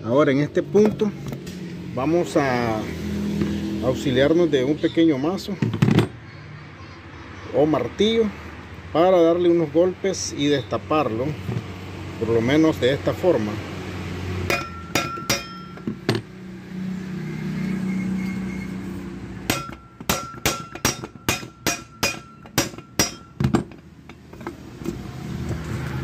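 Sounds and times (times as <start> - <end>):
hammer striking steel shell: 14.5 - 16.3, 19.5 - 24.2.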